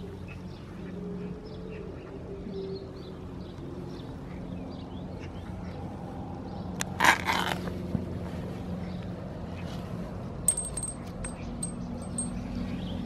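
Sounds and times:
small metal bell tinkling: 0:10.5 - 0:12.6.

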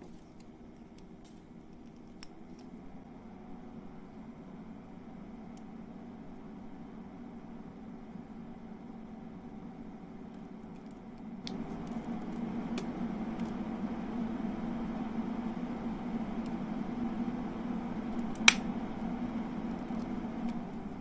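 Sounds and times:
cooling fans humming: 0:00.0 - 0:21.0
speed controller button clicks: 0:18.4 - 0:18.6.

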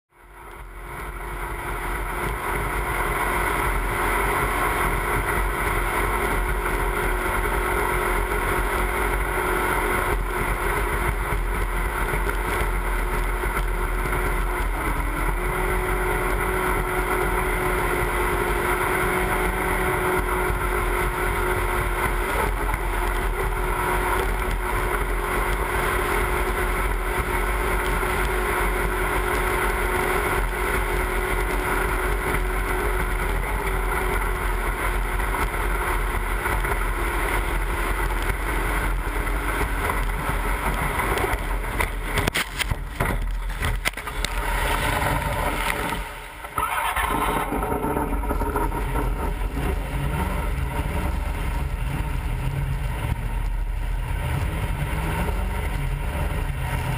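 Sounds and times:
boat engine running hard: 0:00.1 - 0:56.9
rushing water: 0:00.5 - 0:56.9.

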